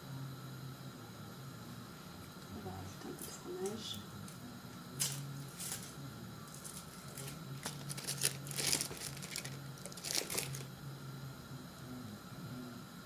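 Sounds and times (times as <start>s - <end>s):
foil wrapper crinkling: 6.5s - 10.7s.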